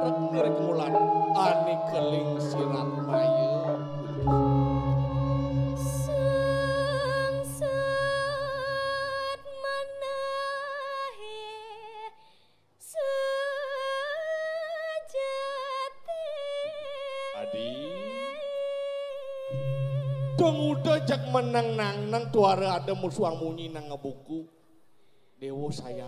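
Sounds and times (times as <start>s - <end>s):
person singing solo: 0.0s - 4.7s
gong humming: 0.0s - 9.2s, 19.5s - 24.0s.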